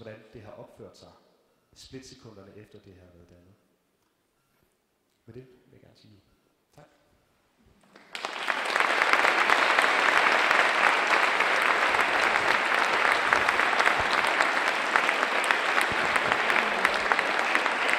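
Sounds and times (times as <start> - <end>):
audience applauding: 7.8 - 17.9.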